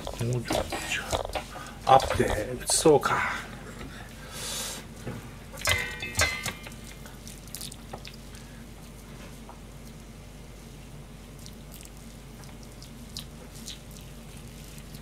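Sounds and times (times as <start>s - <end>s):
knocks on steel bowl: 5.6s - 6.8s
wet squelching of food by hand: 5.6s - 10.2s, 11.1s - 15.0s.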